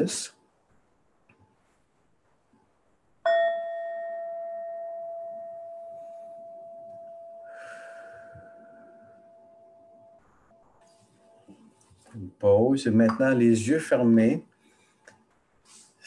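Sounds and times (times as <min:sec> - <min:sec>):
singing bowl ringing: 0:03.3 - 0:10.2.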